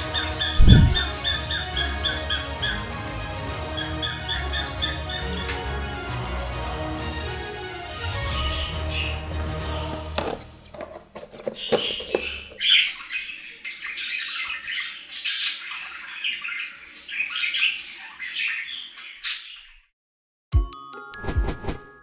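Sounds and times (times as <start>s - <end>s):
budgerigars chattering and squawking: 0.0s - 5.7s, 11.6s - 19.8s.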